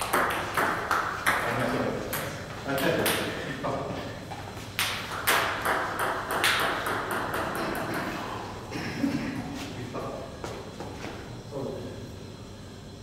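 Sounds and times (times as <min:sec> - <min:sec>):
table tennis ball bouncing: 0:00.0 - 0:03.4, 0:04.8 - 0:08.4.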